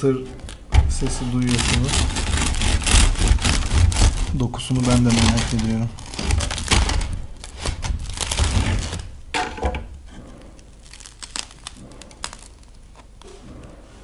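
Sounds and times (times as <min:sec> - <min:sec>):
bread knife sawing crusty loaf: 0:01.0 - 0:09.0.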